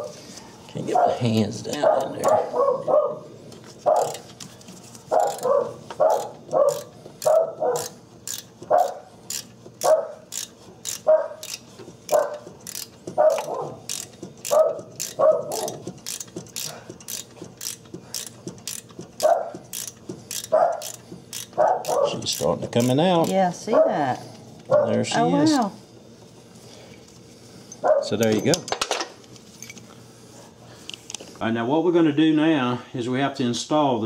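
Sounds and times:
dog barking: 0.9 - 1.2, 1.8 - 4.2, 5.1 - 8.0, 8.7 - 9.1, 9.8 - 10.2, 11.0 - 11.4, 12.1 - 12.4, 13.2 - 13.8, 14.5 - 15.8, 19.2 - 19.6, 20.5 - 20.9, 21.6 - 22.2, 23.7 - 24.1, 24.7 - 25.1, 27.8 - 28.2
ratchet wrench clicking: 3.9 - 23.6.

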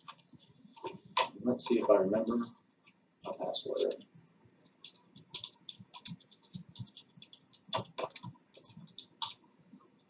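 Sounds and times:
keyboard key clicks: 4.8 - 9.4.

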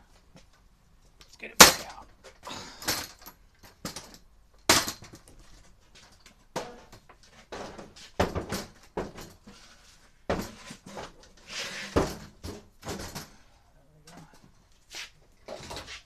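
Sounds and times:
ladder knocking and clattering: 3.0 - 11.2.

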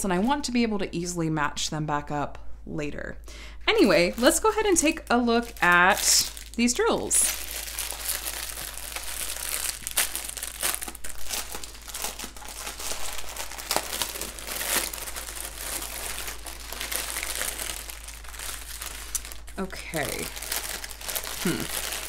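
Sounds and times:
plastic wrap crinkling: 3.7 - 22.0.

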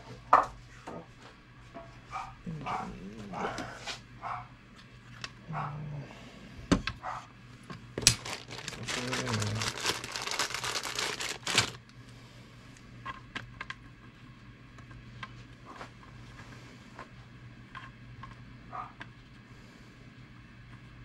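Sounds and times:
plastic packaging crinkling: 8.0 - 11.8.

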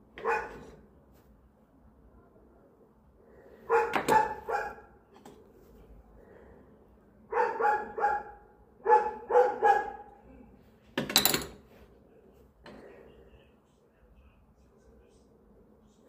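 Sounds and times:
dog barking: 0.2 - 0.8, 3.7 - 5.0, 7.3 - 10.2.

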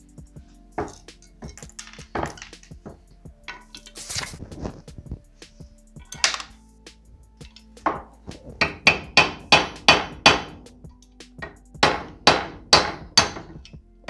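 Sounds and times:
hammer tapping metal punch: 8.6 - 10.6, 11.4 - 13.8.

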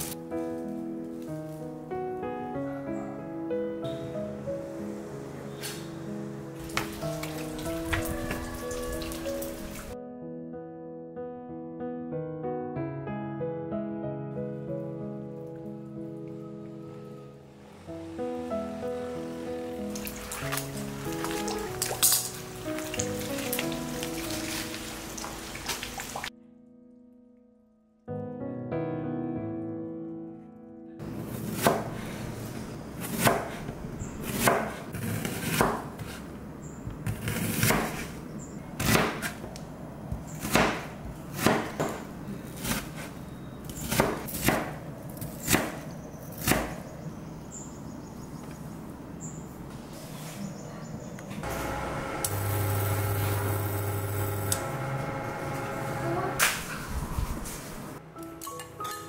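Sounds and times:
soft piano music: 0.0 - 34.6, 51.0 - 59.0
knife chopping on cutting board: 33.0 - 36.2, 37.0 - 38.1, 38.8 - 39.5, 40.2 - 43.1, 43.8 - 44.8, 46.4 - 46.8
steady hum: 51.4 - 56.4.

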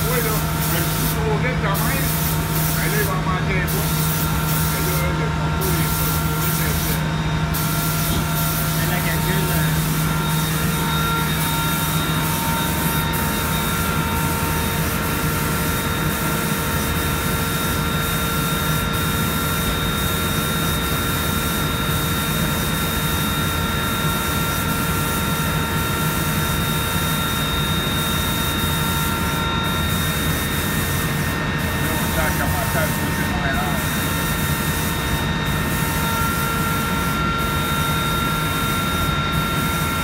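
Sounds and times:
steady whining tones: 4.3 - 14.8.

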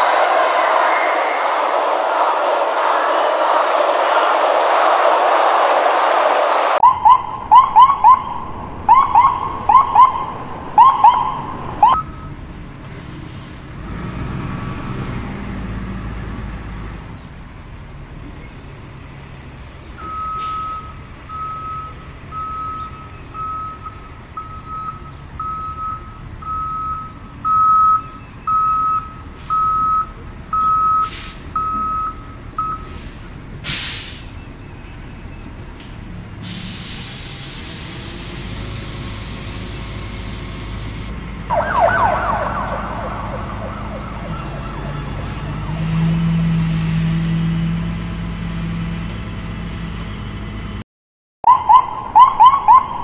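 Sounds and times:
electronic siren whoops: 6.8 - 12.0, 41.5 - 46.3, 51.4 - 53.0
truck reversing beep: 6.8 - 12.5, 19.9 - 35.7, 38.2 - 47.7.

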